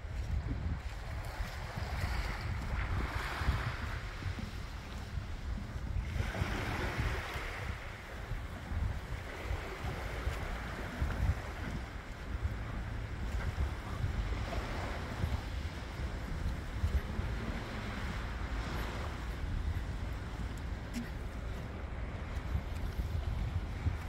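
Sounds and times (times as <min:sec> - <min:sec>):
sea waves washing against pier: 0:00.0 - 0:24.0
wind buffeting microphone: 0:00.0 - 0:24.0.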